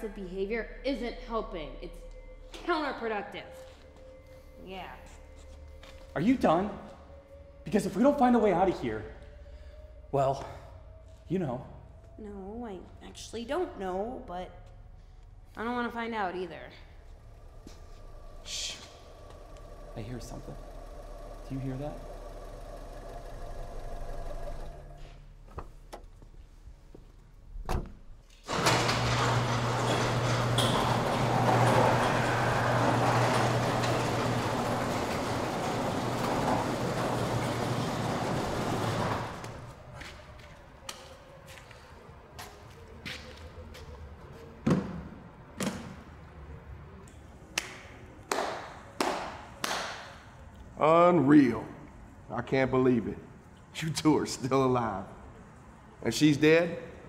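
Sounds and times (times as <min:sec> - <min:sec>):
steady low hum: 0:00.0 - 0:40.8
garage door rattling open: 0:16.8 - 0:25.0, 0:27.6 - 0:40.1
slow gloved hand claps: 0:47.5 - 0:50.2.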